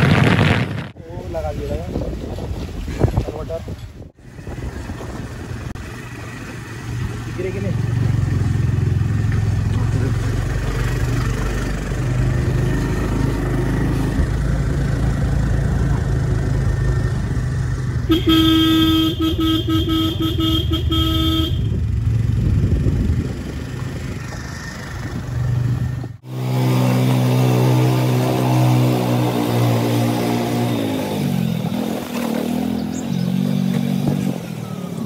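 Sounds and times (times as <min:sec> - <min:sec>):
horn tooting: 0:18.1 - 0:21.8.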